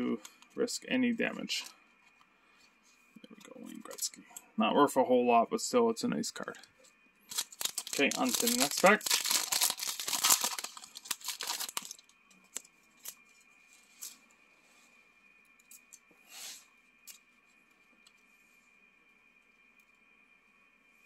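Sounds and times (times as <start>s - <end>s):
wrapper tearing and crinkling: 7.3s - 12.1s
cards rustling: 7.3s - 13.2s.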